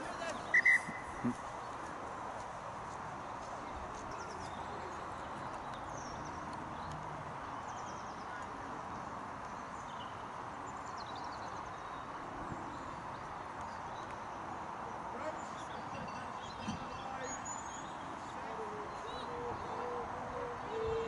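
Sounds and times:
outdoor background noise: 0.0 - 21.0
faint high bird chirps: 0.3 - 1.3.

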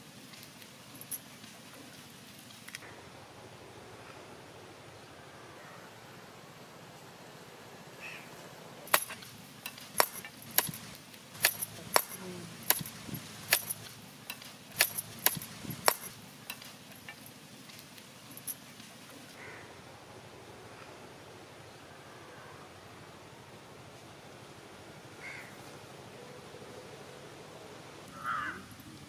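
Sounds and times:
blade chopping crab shells: 8.9 - 13.9, 14.8 - 16.6.

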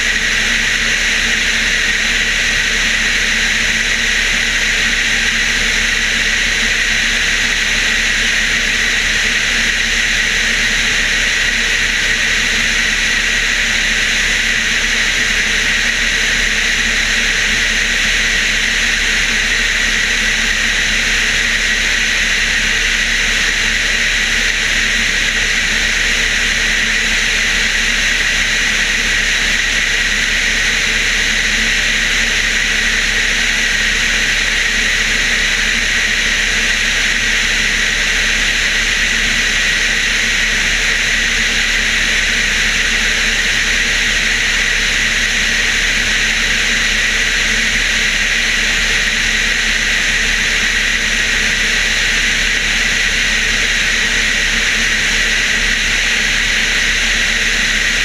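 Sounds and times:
aircraft engine drone: 0.0 - 58.0.

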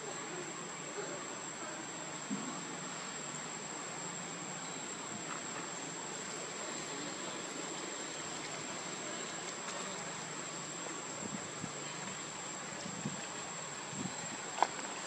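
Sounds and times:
background hiss: 0.0 - 15.0.

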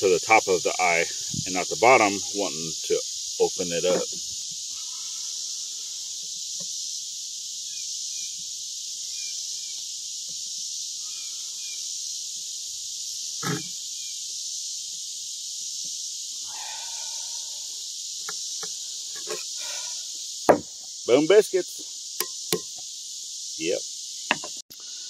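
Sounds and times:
high-pitched insect chorus: 0.0 - 25.0
single knock: 20.5 - 20.7.

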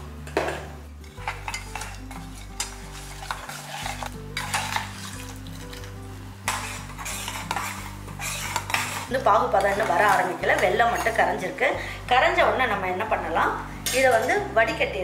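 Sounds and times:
spoon scraping steel pot: 1.0 - 11.4.

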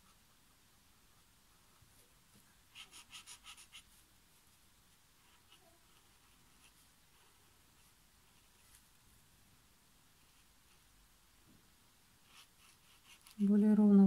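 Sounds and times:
brush pen scratching on paper: 2.7 - 4.0, 5.2 - 8.8, 12.2 - 13.5.

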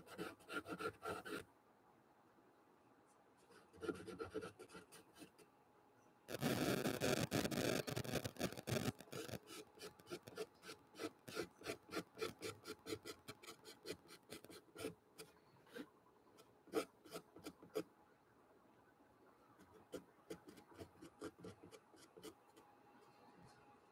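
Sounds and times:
pencil scratching on paper: 0.0 - 1.4, 3.5 - 5.4, 6.3 - 15.9, 16.7 - 17.8, 19.6 - 22.4.

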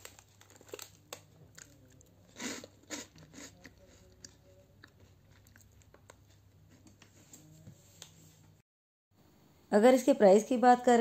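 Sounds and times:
rusk cracking and crumbling: 0.0 - 2.1.

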